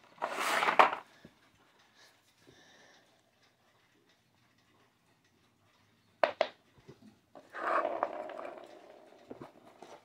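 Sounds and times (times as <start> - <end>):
plastic scraping and rubbing: 0.0 - 1.1.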